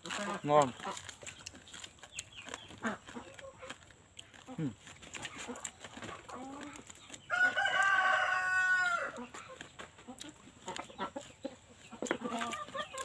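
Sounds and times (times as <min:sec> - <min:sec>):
chewing crispy food: 0:00.0 - 0:13.0
rooster crowing: 0:07.3 - 0:09.2.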